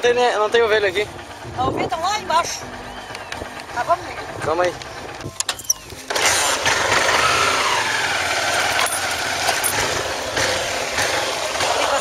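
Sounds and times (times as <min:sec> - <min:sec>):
motorcycle engine revving: 0:05.8 - 0:12.0.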